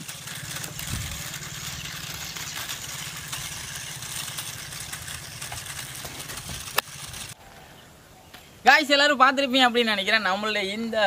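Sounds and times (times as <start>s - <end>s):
toy car motors whirring: 0.0s - 7.4s.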